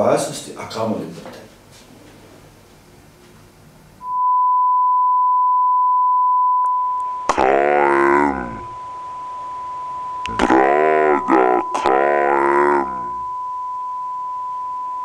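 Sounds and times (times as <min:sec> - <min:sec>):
steady test tone beep: 0:04.0 - 0:10.4, 0:11.3 - 0:15.0.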